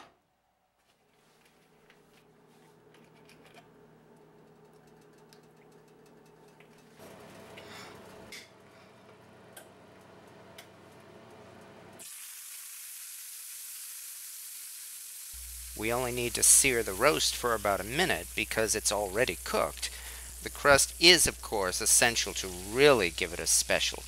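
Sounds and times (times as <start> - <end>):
meat sizzling in a pan: 12.0 - 24.0
oil crackling in a skillet: 12.0 - 24.0.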